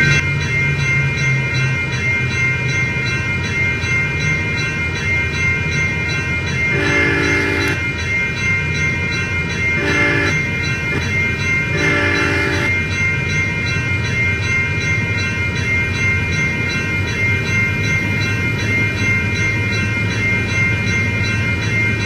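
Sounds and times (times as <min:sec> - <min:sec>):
passing train rumble: 0:00.0 - 0:22.0
train horn blasts: 0:06.7 - 0:07.8, 0:09.7 - 0:11.1, 0:11.7 - 0:12.8.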